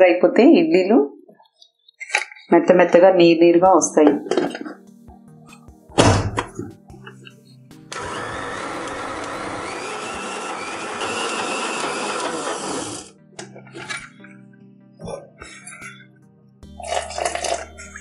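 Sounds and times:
mixer grinder grinding: 7.9s - 13.1s, 16.7s - 18.0s.

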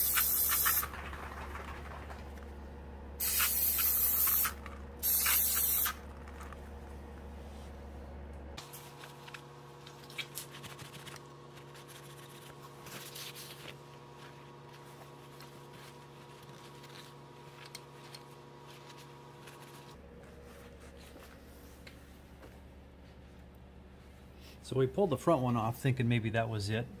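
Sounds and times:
paper towel rustling and scraping: 8.6s - 22.2s.

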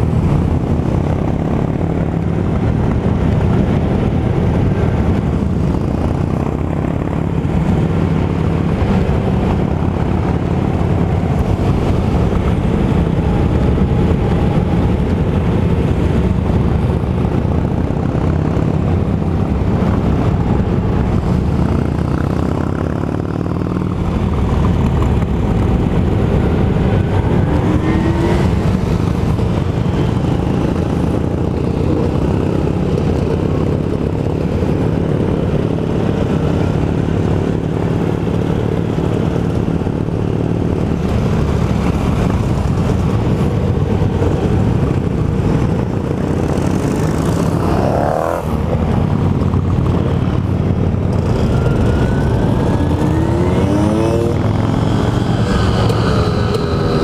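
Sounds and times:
motorcycle engines: 0.0s - 57.0s
engine revving: 24.7s - 33.5s, 45.2s - 57.0s.

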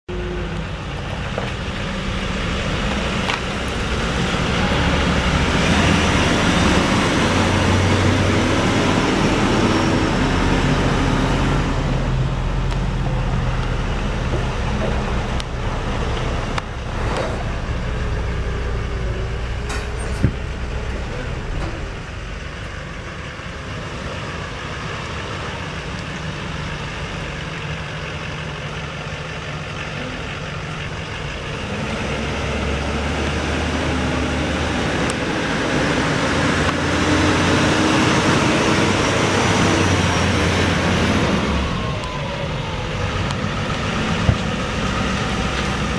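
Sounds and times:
diesel truck engine running: 0.1s - 45.9s.

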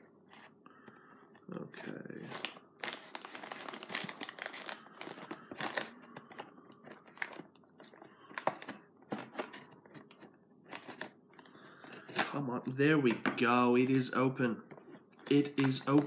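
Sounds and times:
snack packaging crinkling: 2.2s - 12.4s, 14.8s - 16.0s.

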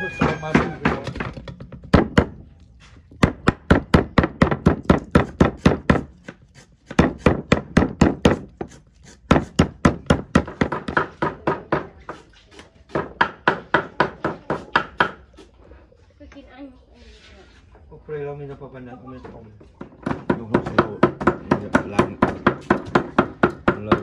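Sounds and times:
cleaver chopping on wooden block: 3.2s - 12.2s.

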